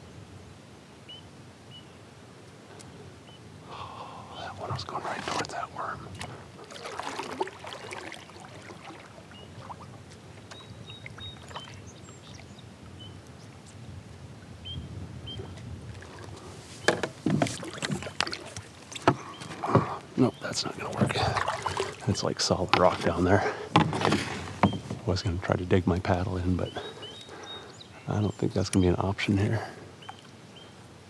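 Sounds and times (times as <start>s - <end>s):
water lapping against kayak: 3.6s - 13.8s, 14.4s - 25.4s, 26.5s - 28.0s
paddle splashing in water: 6.1s - 12.6s, 15.3s - 20.0s, 20.7s - 25.1s
paddle knocking on rock: 16.8s - 20.0s, 23.7s - 25.0s.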